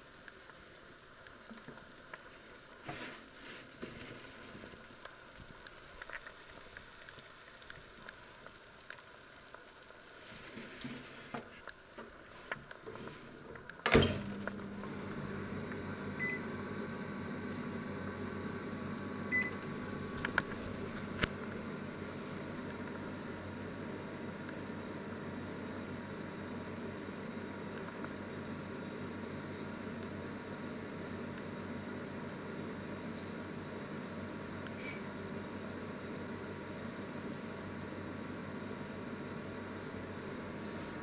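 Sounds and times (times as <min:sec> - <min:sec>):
microwave humming: 0:07.9 - 0:41.0
microwave door shutting: 0:13.8 - 0:14.5
control panel beeps: 0:16.2 - 0:16.4, 0:19.3 - 0:19.6.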